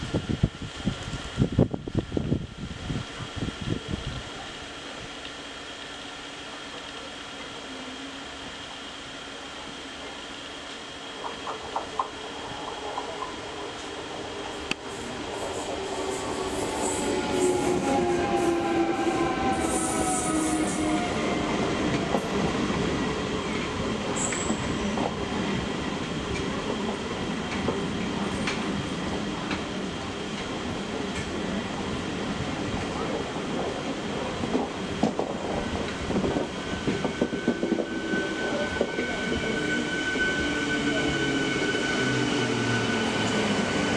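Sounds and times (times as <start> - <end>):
electric train motors whining: 4.9 - 27.6.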